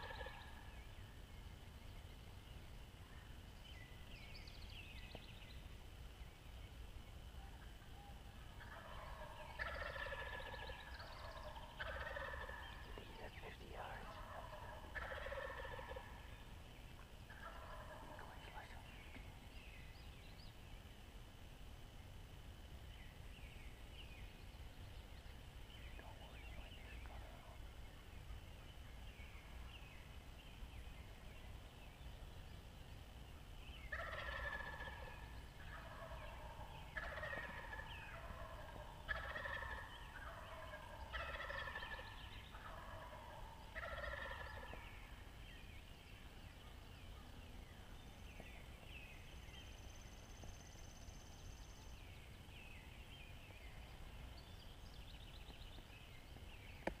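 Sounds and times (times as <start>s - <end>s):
turkeys gobbling: 0.0s - 0.5s, 8.6s - 13.2s, 13.8s - 16.2s, 17.3s - 18.3s, 33.9s - 44.8s.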